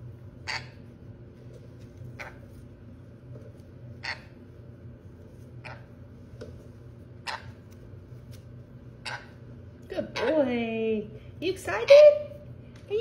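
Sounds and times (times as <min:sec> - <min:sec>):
low steady hum: 0:00.0 - 0:13.0
parrot harsh chirps: 0:00.4 - 0:00.8, 0:02.2 - 0:02.4, 0:04.0 - 0:04.4, 0:05.6 - 0:05.9, 0:07.2 - 0:07.6, 0:09.0 - 0:09.4.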